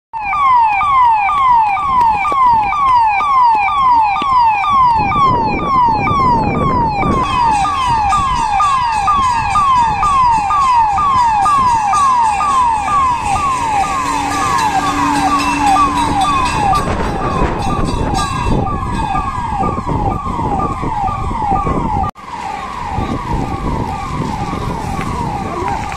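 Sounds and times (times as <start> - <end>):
fire engine siren: 0.1 - 25.9.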